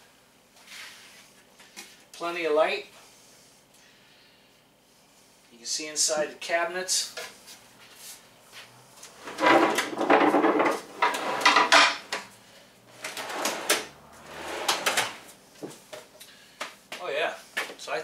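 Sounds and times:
wooden drawers sliding and knocking: 9.2 - 12.2, 13.0 - 15.8.

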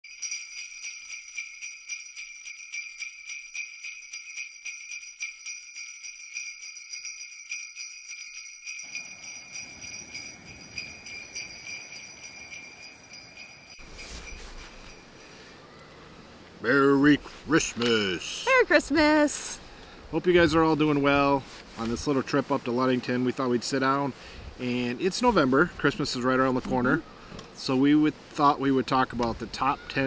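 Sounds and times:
sleigh bells shaken: 0.0 - 15.6.

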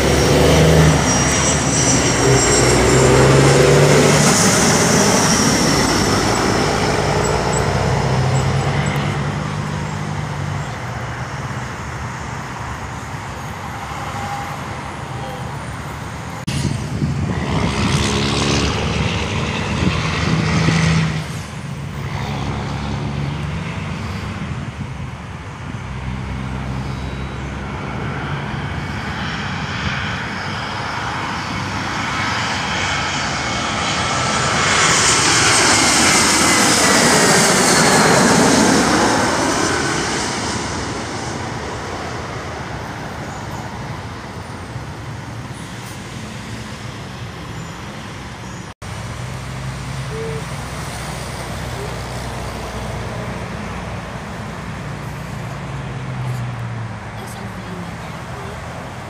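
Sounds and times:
jet passing overhead: 0.0 - 59.0
road vehicle engine droning: 0.0 - 59.0.

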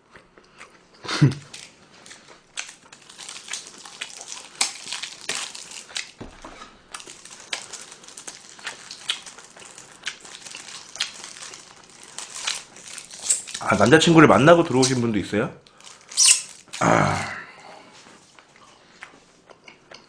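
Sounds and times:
person chewing and swallowing: 0.0 - 13.6.

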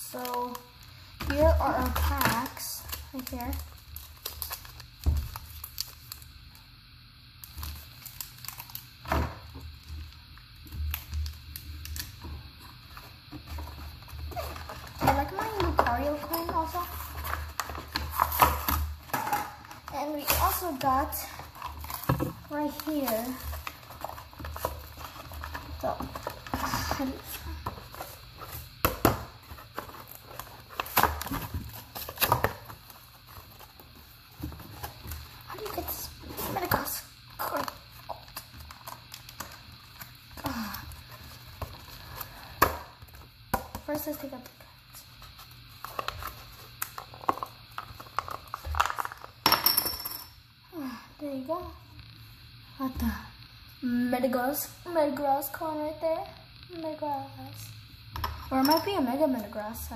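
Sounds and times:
plastic blister pack crackling: 0.0 - 6.6, 7.4 - 43.5.

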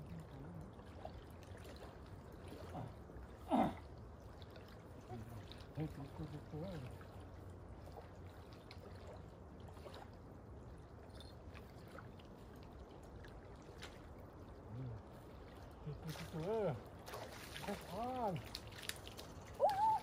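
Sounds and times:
gentle water sounds: 0.0 - 20.0
faint voice: 14.7 - 15.0.

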